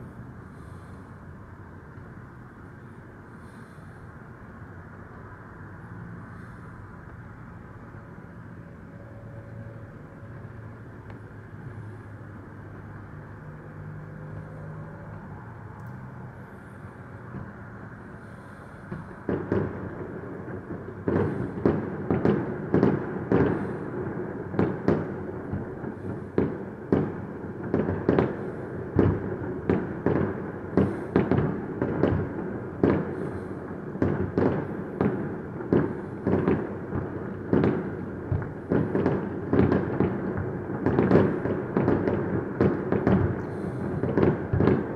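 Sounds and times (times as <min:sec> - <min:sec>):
fireworks bangs: 0:16.4 - 0:44.9.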